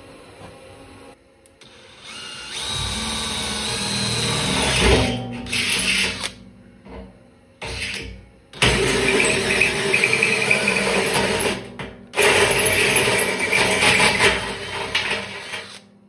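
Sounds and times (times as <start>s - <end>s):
cordless drill cutting steel: 1.6s - 6.4s, 8.6s - 11.6s, 12.2s - 15.9s.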